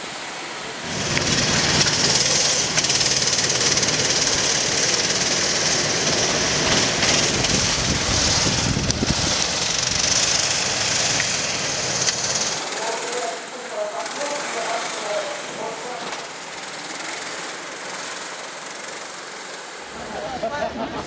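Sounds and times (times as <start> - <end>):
go-kart engines buzzing: 0.0 - 21.0.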